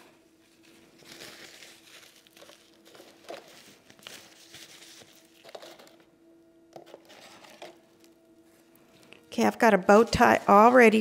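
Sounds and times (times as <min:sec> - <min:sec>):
craft materials rustling and crinkling: 0:00.0 - 0:06.1, 0:06.8 - 0:11.0
faint steady hum: 0:00.0 - 0:11.0.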